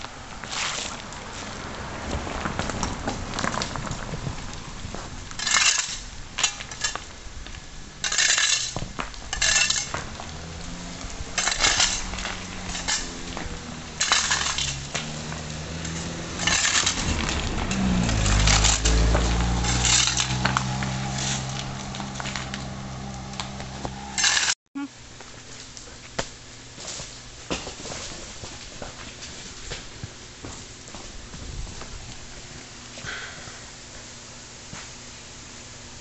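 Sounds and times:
vehicle engine rumble: 0:00.0 - 0:24.6
shovel scraping over gravel: 0:00.4 - 0:01.5, 0:04.9 - 0:07.2, 0:08.0 - 0:24.6.

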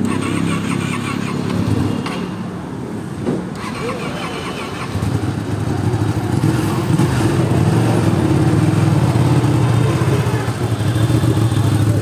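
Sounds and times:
motorcycle engine idling: 0:08.3 - 0:12.0.

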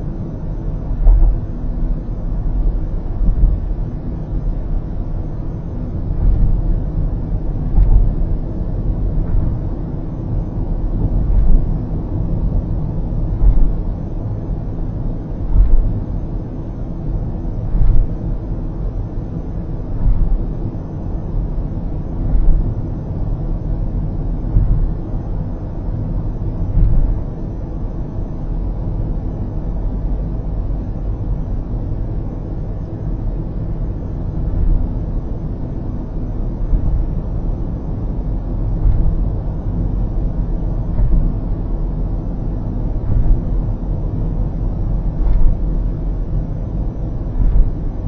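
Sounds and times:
car road rumble from inside: 0:00.0 - 0:48.0
car bumps: 0:01.0 - 0:01.5, 0:13.4 - 0:13.8, 0:15.5 - 0:15.9, 0:22.2 - 0:22.7, 0:26.7 - 0:27.3, 0:38.8 - 0:39.2, 0:40.9 - 0:41.4, 0:43.0 - 0:43.5.

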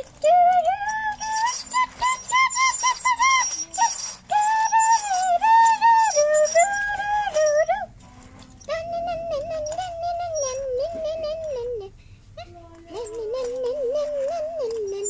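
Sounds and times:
young child humming: 0:00.0 - 0:08.0, 0:08.6 - 0:15.0.

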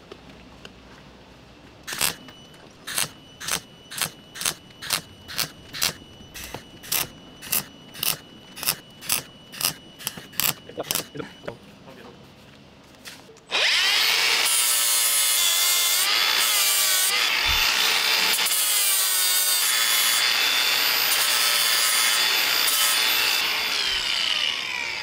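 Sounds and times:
grinding disc rasping on metal: 0:01.9 - 0:11.4
angle grinder whining: 0:01.9 - 0:11.5, 0:13.5 - 0:25.0.

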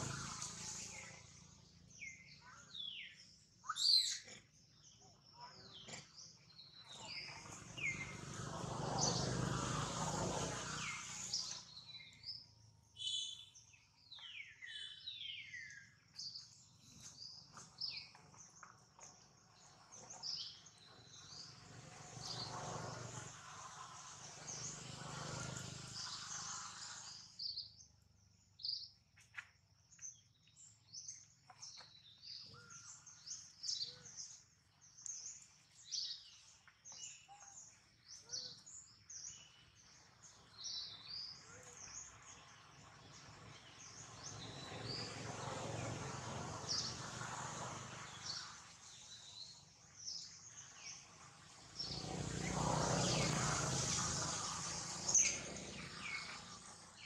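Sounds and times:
birds chirping: 0:00.0 - 0:29.0, 0:29.9 - 0:57.0.

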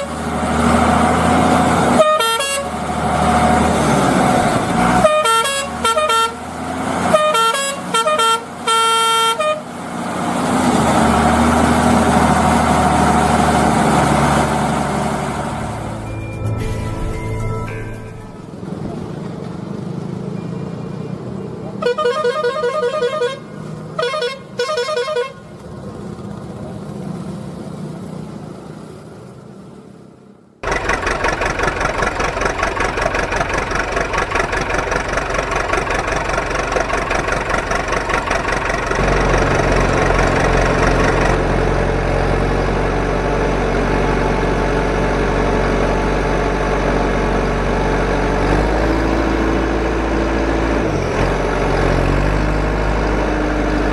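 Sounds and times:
warbling truck horn blasts: 0:02.0 - 0:02.8, 0:04.9 - 0:06.5, 0:07.1 - 0:09.7, 0:21.8 - 0:25.4
truck engine pulsing: 0:11.0 - 0:19.4, 0:30.6 - 0:53.9
low hum: 0:15.2 - 0:19.1.

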